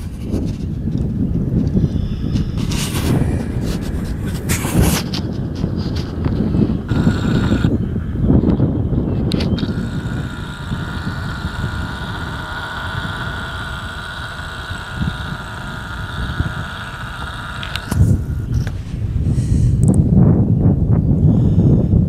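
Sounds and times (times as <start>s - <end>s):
camcorder zoom motor whining: 6.8s - 7.8s, 9.2s - 18.8s.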